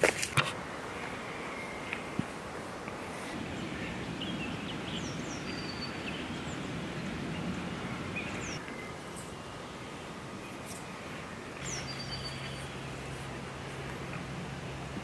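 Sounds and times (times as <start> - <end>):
low rumbling hiss: 0.0 - 15.0
high bird chirps: 3.6 - 6.7, 11.6 - 12.8.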